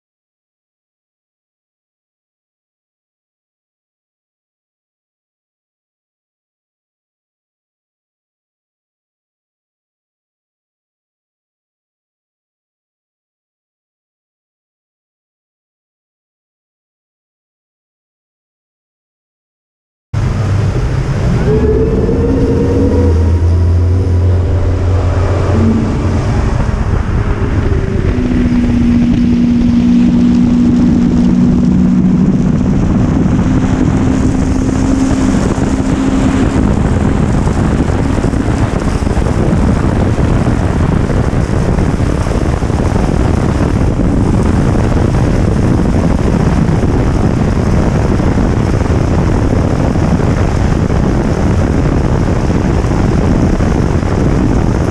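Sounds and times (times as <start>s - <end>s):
outboard engine accelerating: 20.2s - 54.9s
rushing water: 20.2s - 54.9s
wind on microphone: 20.2s - 54.9s.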